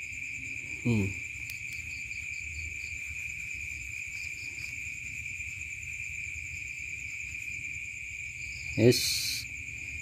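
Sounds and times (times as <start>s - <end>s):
crickets trilling: 0.0s - 10.0s.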